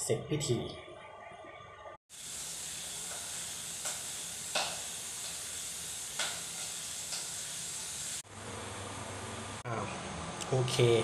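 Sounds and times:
cooking sizzle with pops: 2.1 - 8.3.

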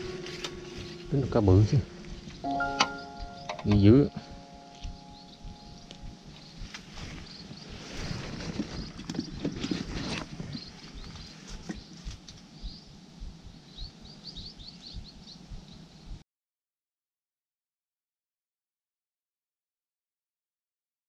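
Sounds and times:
dry palm fronds rustling: 0.0 - 2.4, 6.0 - 12.5
small birds chirping: 0.7 - 16.2.

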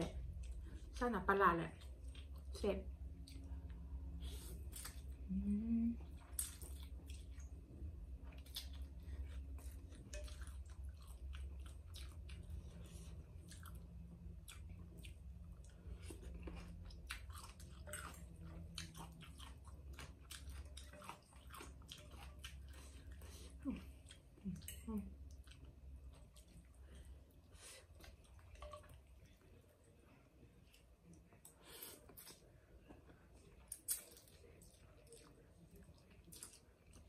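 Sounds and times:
person chewing noodles: 1.8 - 37.0.

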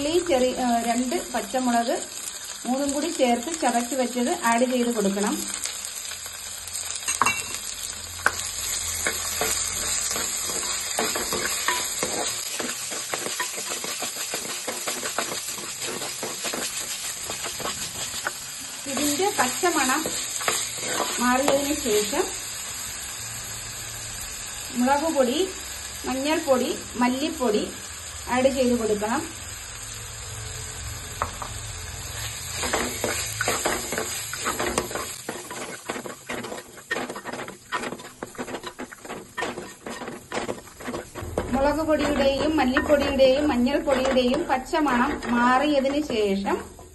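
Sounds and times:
onions sizzling in hot oil: 0.0 - 46.9
wooden spatula scraping pot: 9.0 - 21.6, 32.2 - 46.9.

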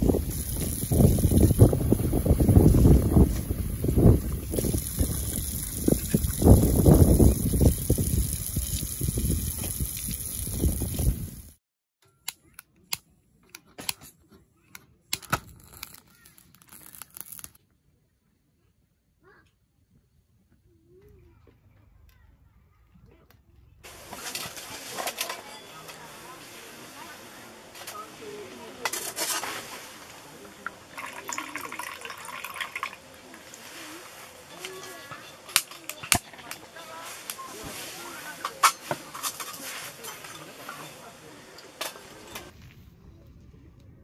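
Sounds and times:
fuel trickling into burner: 0.0 - 11.5, 28.8 - 35.6
plastic crinkling: 15.3 - 17.6.

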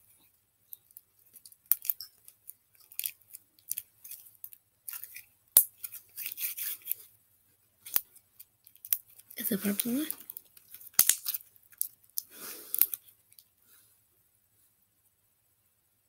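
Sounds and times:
sticky slime clicks and crackles: 7.9 - 13.0.

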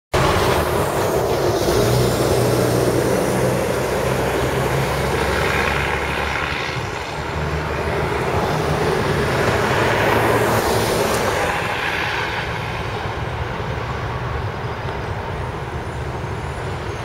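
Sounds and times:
cars passing: 0.1 - 17.0
low engine hum: 0.2 - 11.6.

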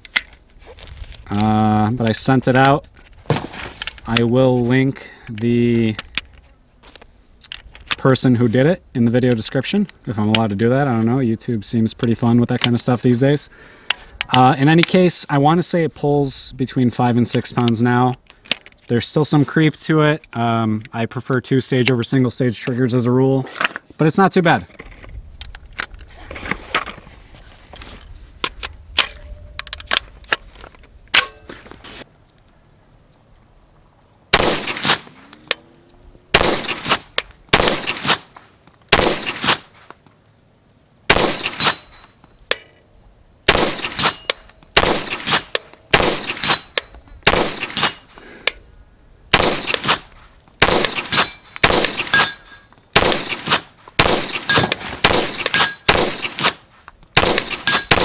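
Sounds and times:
gun handling clicks: 5.2 - 8.0, 28.4 - 31.3, 43.8 - 48.6
pistol shots: 34.3 - 35.1, 36.3 - 38.2, 38.9 - 39.6, 41.1 - 41.9, 43.5 - 48.0, 49.3 - 50.0, 50.6 - 52.4, 53.0 - 56.6, 57.2 - 58.0
bullets clanging on steel targets: 41.4 - 42.7, 43.8 - 47.0, 51.0 - 52.7, 54.3 - 56.5, 57.4 - 58.0.

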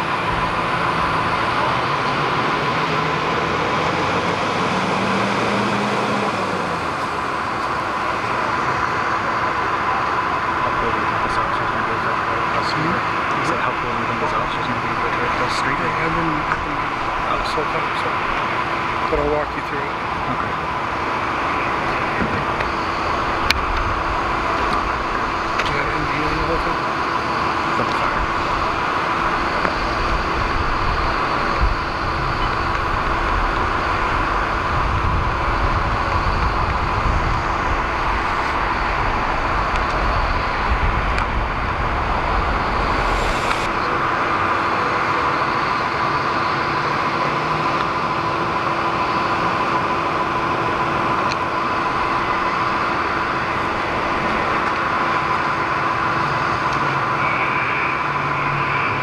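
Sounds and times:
high-pitched hum: 0.0 - 59.0
road traffic noise: 0.0 - 59.0
low rumble: 27.6 - 46.6.

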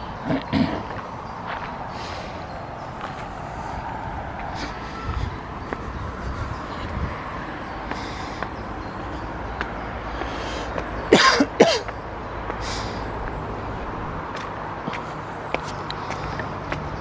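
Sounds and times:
traffic noise: 0.0 - 17.0
footsteps on a path: 0.4 - 17.0
person coughing: 11.1 - 11.9.

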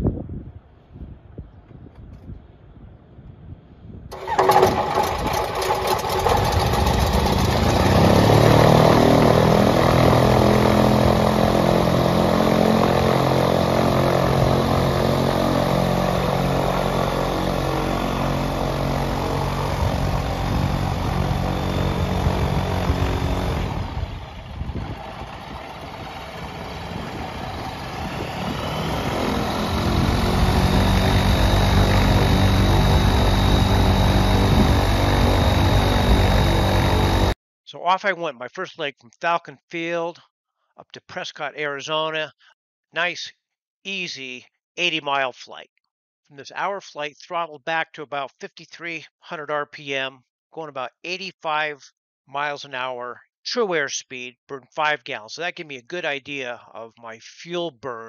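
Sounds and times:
aircraft engine and propeller: 4.1 - 37.4.

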